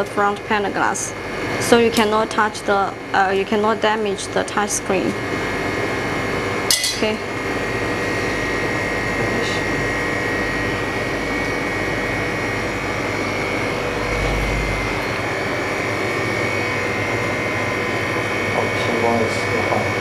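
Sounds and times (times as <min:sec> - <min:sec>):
refrigeration unit drone: 0:00.0 - 0:20.0
high whine: 0:06.6 - 0:20.0
low bump: 0:13.8 - 0:15.5.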